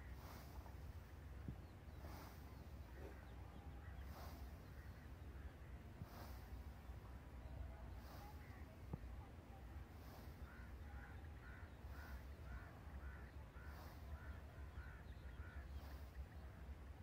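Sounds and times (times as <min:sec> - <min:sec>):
bird calling: 0:10.0 - 0:16.4.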